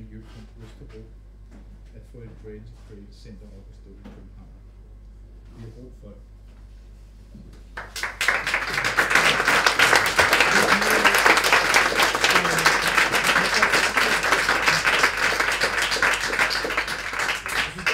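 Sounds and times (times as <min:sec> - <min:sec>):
audience applauding: 0:07.8 - 0:17.9.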